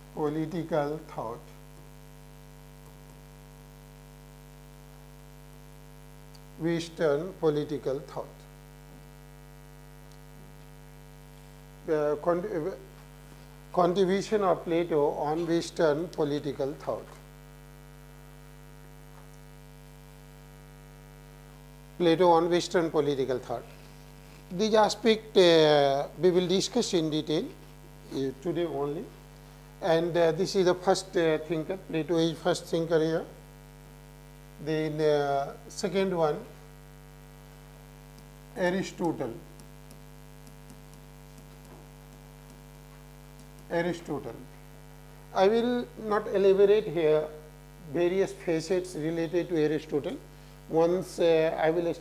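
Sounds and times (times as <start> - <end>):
electrical mains hum: 0.0 - 52.0
man speaking: 0.2 - 1.5, 6.6 - 8.4, 11.8 - 12.9, 13.7 - 17.2, 22.0 - 23.8, 24.5 - 29.2, 29.8 - 33.4, 34.6 - 36.6, 38.5 - 39.5, 43.7 - 44.6, 45.3 - 52.0
man's voice: 43.7 - 44.4.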